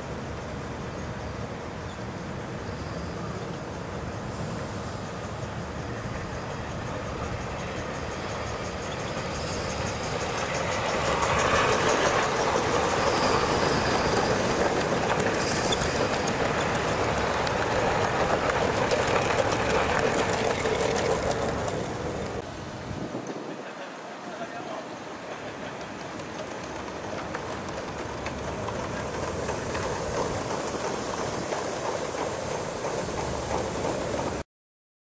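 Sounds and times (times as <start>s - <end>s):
model train wheels on metal track: 0.2s - 22.5s, 23.6s - 34.4s.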